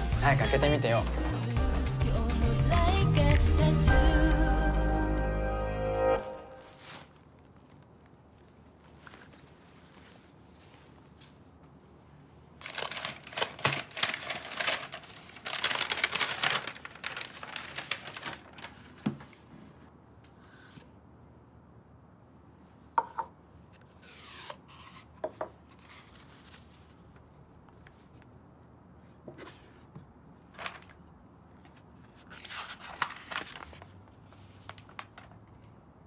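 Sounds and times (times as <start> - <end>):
wrapping paper rustling and tearing: 6.3 - 11.4, 12.6 - 19.4, 25.7 - 28.2, 30.5 - 31.0, 31.6 - 35.4.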